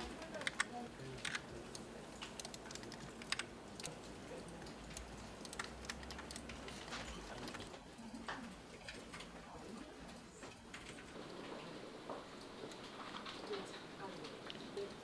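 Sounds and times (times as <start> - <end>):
faint low room hum: 0.0 - 15.0
keyboard and mouse clicking: 0.2 - 6.7.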